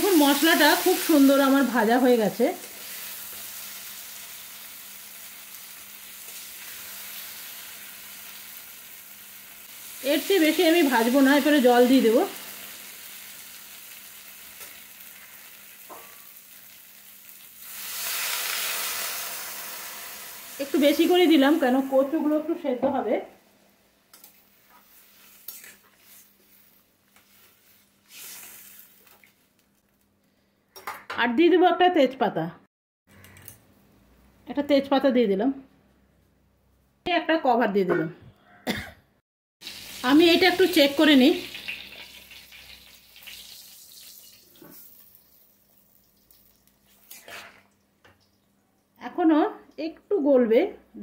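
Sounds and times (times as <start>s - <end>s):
metal spatula scraping steel pot: 25.4s - 26.3s, 47.0s - 47.6s.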